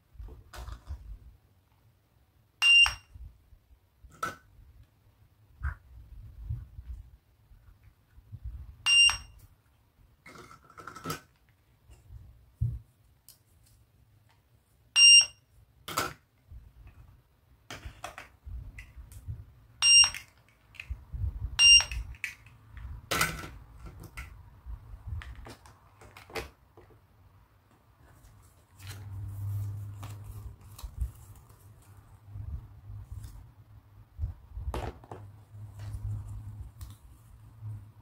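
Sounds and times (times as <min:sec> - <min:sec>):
toy scanner high beeps: 0:02.6 - 0:03.2, 0:08.8 - 0:09.4, 0:15.0 - 0:15.4, 0:19.8 - 0:20.3, 0:21.6 - 0:22.0
plastic toys clicking and tapping: 0:10.3 - 0:11.5, 0:21.8 - 0:24.4.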